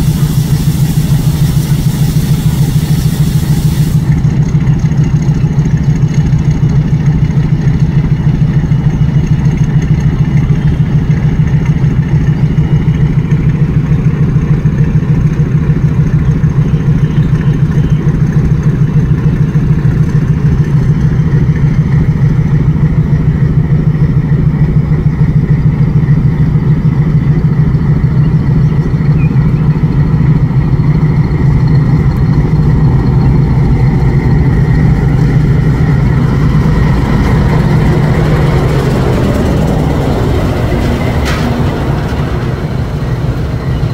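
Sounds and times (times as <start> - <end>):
diesel locomotive idling: 0.0 - 43.9.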